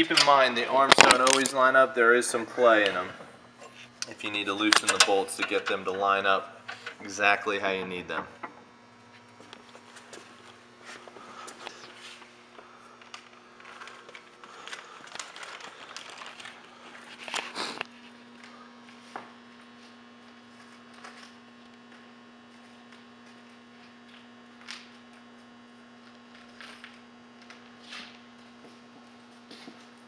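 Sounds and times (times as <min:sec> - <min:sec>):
hardware clatter: 0:04.7 - 0:07.0
metal hardware clicking and rustling: 0:04.7 - 0:07.0
plastic bag crinkling: 0:13.0 - 0:17.8.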